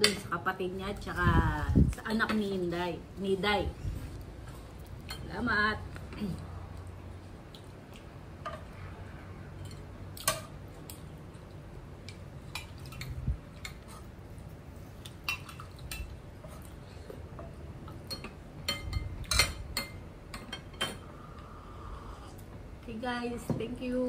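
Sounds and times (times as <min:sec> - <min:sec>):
cutlery clinking on ceramic dishes: 0:17.4 - 0:21.0.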